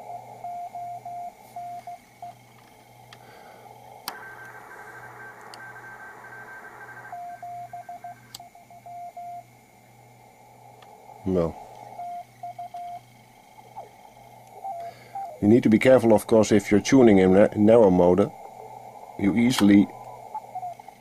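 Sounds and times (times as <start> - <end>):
radio receiver hiss: 0.0 - 21.0
morse code beep tone: 0.1 - 2.4, 4.1 - 9.4, 11.9 - 13.0, 13.7 - 15.6.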